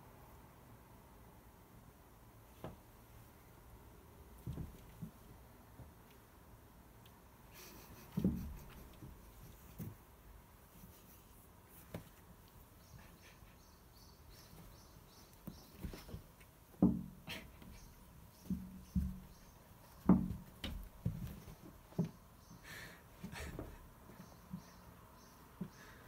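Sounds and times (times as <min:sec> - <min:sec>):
cats scuffling: 0:04.3 - 0:06.3, 0:07.0 - 0:26.0
thumps of bodies and paws: 0:04.4 - 0:05.3, 0:08.0 - 0:10.0, 0:15.4 - 0:22.2.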